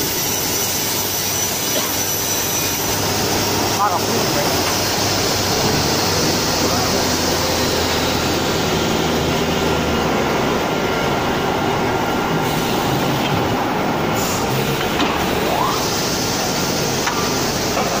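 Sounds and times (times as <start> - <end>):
edge trimming saw running: 0.0 - 10.3.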